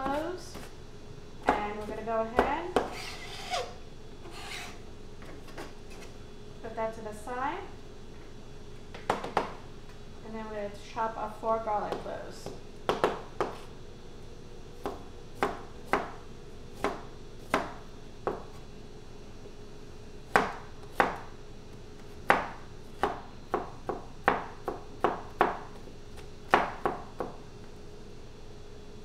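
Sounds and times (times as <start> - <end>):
knife chopping on plastic cutting mat: 12.4 - 13.7.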